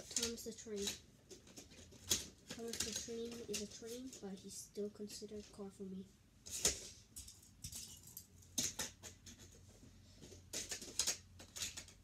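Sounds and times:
toy cars clicking and rattling: 0:00.0 - 0:04.4, 0:06.4 - 0:09.6, 0:10.2 - 0:12.0.

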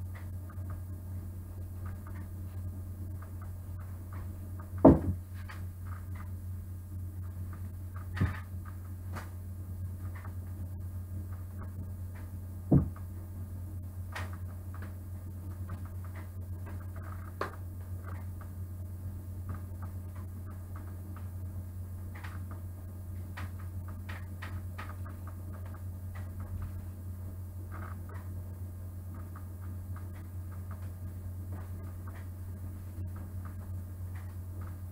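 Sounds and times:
steady low hum: 0:00.0 - 0:34.9
knocks on table: 0:04.8 - 0:05.2, 0:12.7 - 0:13.0
objects tapping on table: 0:04.8 - 0:05.2, 0:12.7 - 0:13.0.

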